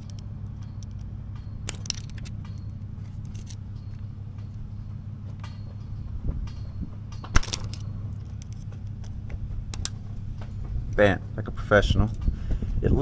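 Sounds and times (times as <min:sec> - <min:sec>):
metal pick clicking and scraping: 0:00.0 - 0:04.6, 0:06.4 - 0:10.5
steady low hum: 0:00.0 - 0:13.0.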